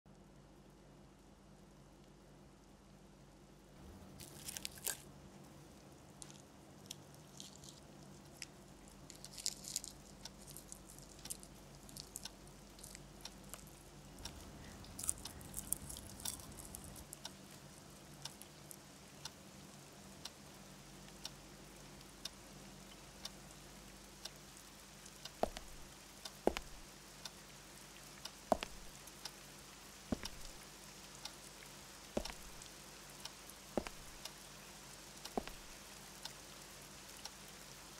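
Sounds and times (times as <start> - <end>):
soft chewing: 3.8 - 19.0, 25.0 - 26.9, 30.1 - 31.2, 32.1 - 34.4
cellophane wrappers crinkling: 4.1 - 5.1, 6.2 - 13.7, 14.6 - 17.3
water drips: 4.2 - 37.8.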